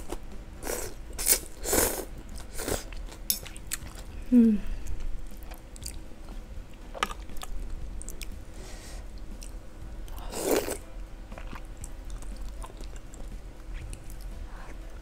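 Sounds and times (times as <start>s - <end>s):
person chewing wetly: 9.4s - 14.3s.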